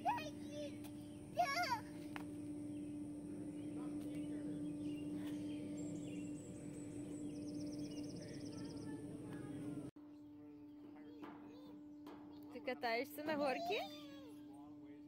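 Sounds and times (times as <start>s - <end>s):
low rushing background noise: 0.0s - 10.0s
steady hum: 0.0s - 10.6s
bird trill: 0.0s - 10.8s.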